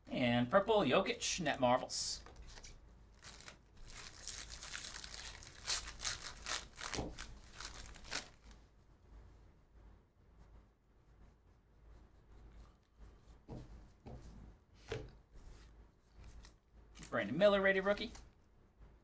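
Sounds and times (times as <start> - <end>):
foil wrapper tearing and crinkling: 3.2 - 8.6.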